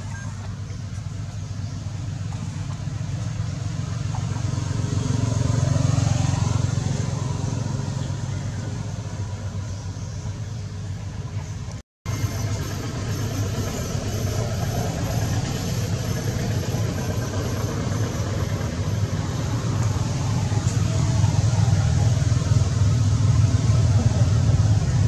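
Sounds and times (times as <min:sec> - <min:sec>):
steady low rumble: 0:07.2 - 0:25.0.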